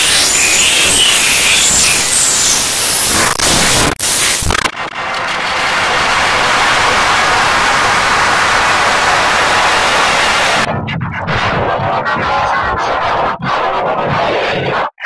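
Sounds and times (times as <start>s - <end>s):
harsh distorted static noise: 0.0s - 15.0s.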